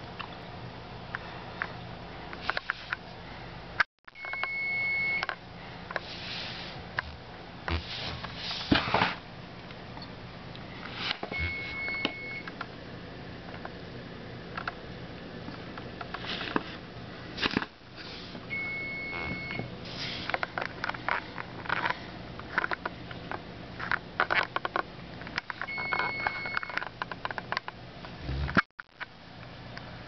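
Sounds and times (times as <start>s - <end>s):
low steady hum: 0.0s - 30.0s
electronic beeper beep: 11.3s - 12.4s
handling rustles and clicks: 20.2s - 28.2s.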